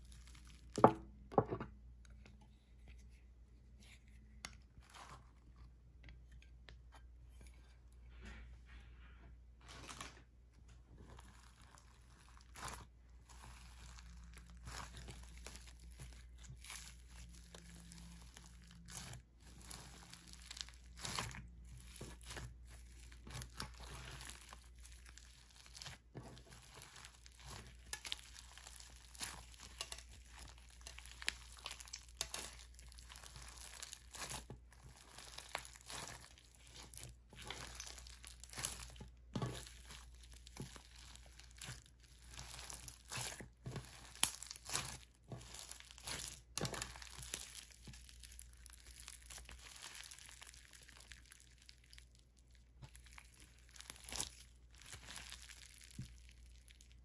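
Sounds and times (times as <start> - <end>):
slime beads crackling: 11.0 - 57.0.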